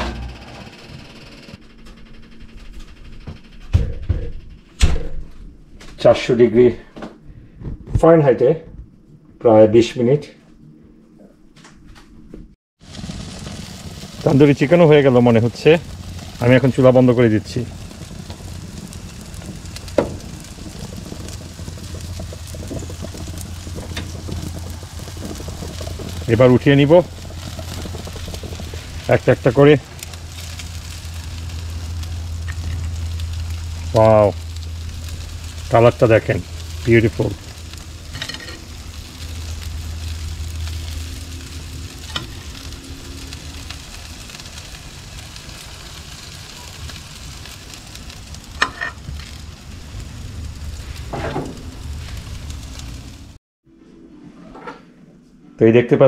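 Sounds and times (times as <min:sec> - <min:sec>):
steady low hum: 0:00.0 - 0:54.2
chicken sizzling on a grill: 0:12.8 - 0:53.4
small crackles: 0:12.8 - 0:53.4.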